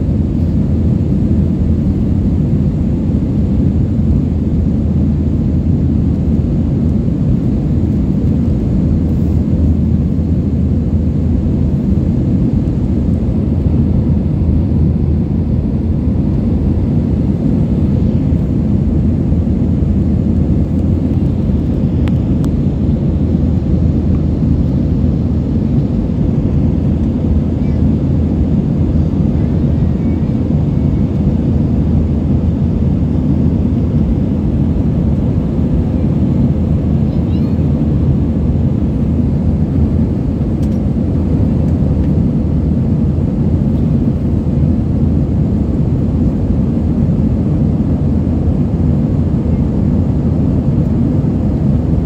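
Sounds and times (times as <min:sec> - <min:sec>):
airliner cabin engine rumble: 0:00.0 - 0:52.0.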